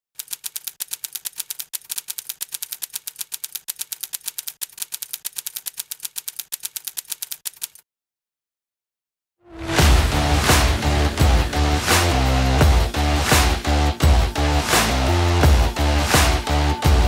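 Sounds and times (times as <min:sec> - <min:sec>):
typewriter key clicks: 0:00.2 - 0:07.8.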